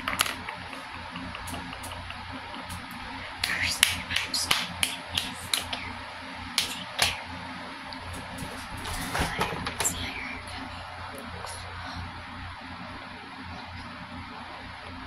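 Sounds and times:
finger snaps: 0:00.0 - 0:06.0, 0:06.6 - 0:07.2
steady low hum: 0:00.0 - 0:15.0.

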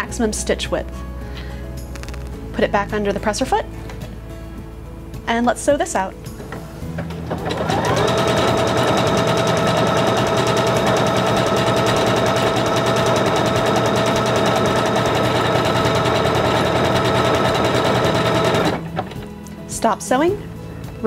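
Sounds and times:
sewing machine running: 0:07.3 - 0:18.9.

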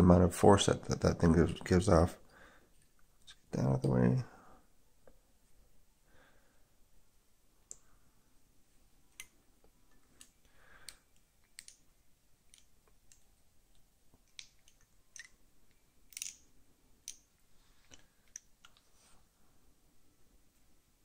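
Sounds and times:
small metal clicks and taps: 0:10.9 - 0:11.8, 0:12.5 - 0:16.4.

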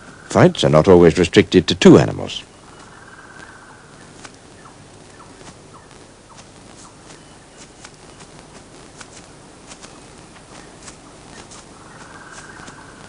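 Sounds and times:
steady hiss: 0:00.0 - 0:13.0
small chirps: 0:02.4 - 0:13.0
sharp ticks: 0:02.8 - 0:13.0.

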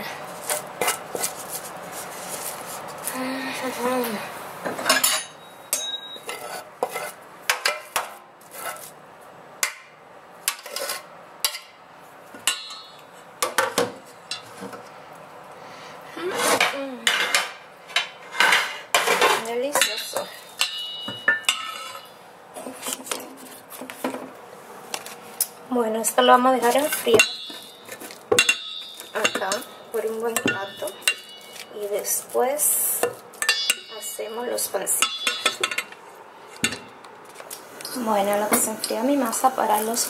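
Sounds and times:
metal spoon scraping a pan: 0:05.0 - 0:08.9, 0:10.5 - 0:11.7, 0:18.2 - 0:23.2, 0:26.3 - 0:37.0.

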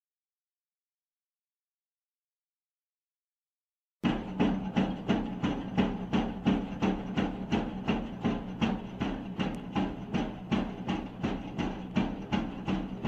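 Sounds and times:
excavator engine hum: 0:04.1 - 0:13.0.

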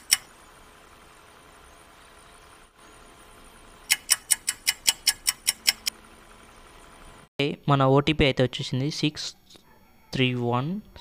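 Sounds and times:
clock ticking: 0:03.9 - 0:05.9.

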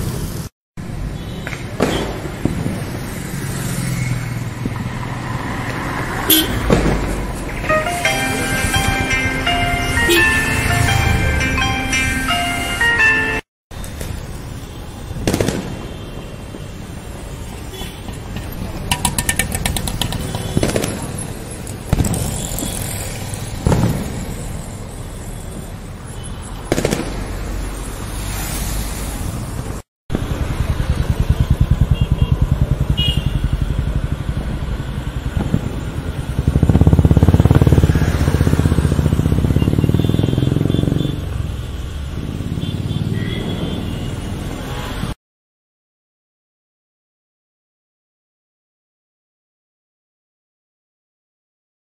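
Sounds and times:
street traffic: 0:00.0 - 0:45.2
firecracker bangs: 0:01.4 - 0:03.0, 0:06.4 - 0:07.4, 0:15.2 - 0:16.4, 0:20.3 - 0:22.8, 0:23.5 - 0:24.8, 0:26.6 - 0:27.6
crackling string of firecrackers: 0:15.2 - 0:16.6, 0:19.0 - 0:25.0, 0:26.6 - 0:27.5
vehicle engine passing: 0:30.2 - 0:41.0.

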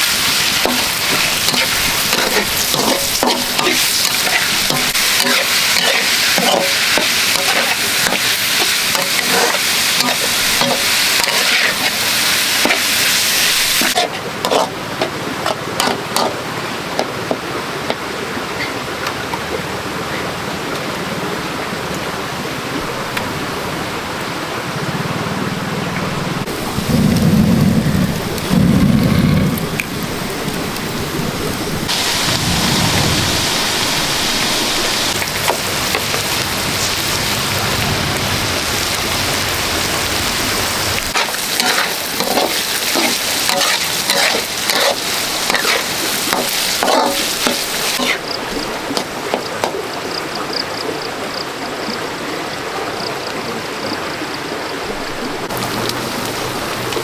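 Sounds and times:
heavy rain falling: 0:00.0 - 0:57.0
low thunder rumbles: 0:24.8 - 0:41.2.

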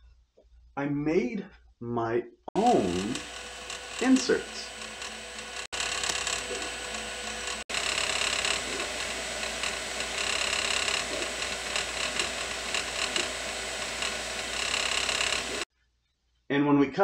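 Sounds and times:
fan whirring: 0:02.6 - 0:15.6
stepper motors whining: 0:02.6 - 0:15.7.

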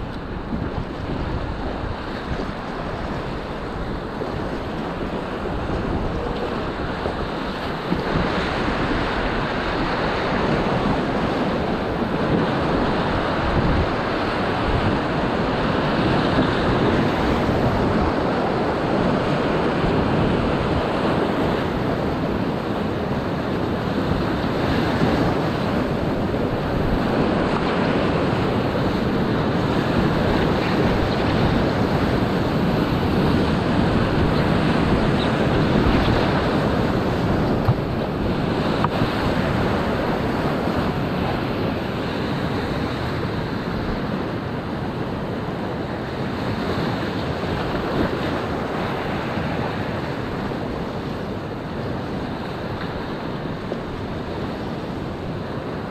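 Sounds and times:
rushing whitewater: 0:00.0 - 0:55.9
waves splashing against boat: 0:00.0 - 0:55.9.

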